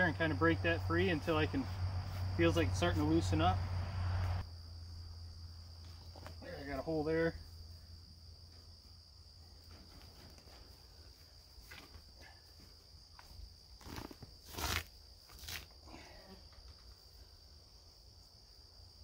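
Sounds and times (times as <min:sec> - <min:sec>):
insects droning in grass: 0:00.0 - 0:19.0
hide scuffing and rustling: 0:09.6 - 0:14.8.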